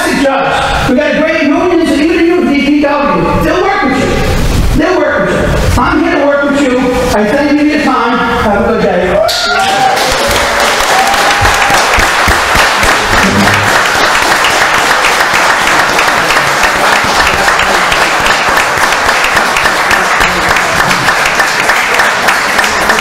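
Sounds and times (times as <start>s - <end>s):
audience applause: 9.5s - 23.0s.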